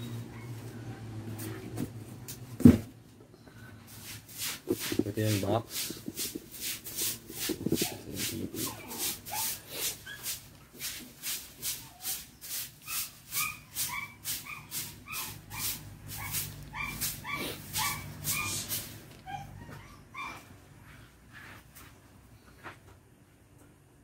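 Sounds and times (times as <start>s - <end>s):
rhythmic hiss: 3.9s - 15.0s
dog whimpering: 7.7s - 10.2s, 13.0s - 20.5s.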